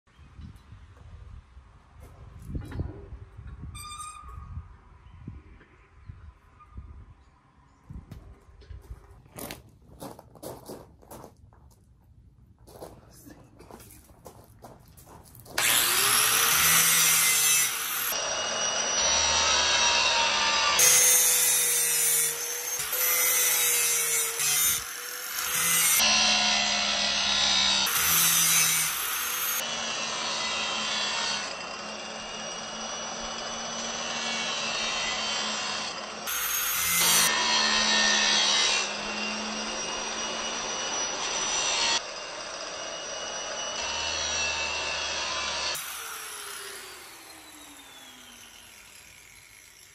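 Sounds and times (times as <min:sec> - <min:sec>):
angle grinder grinding steel: 0:15.6 - 0:49.9.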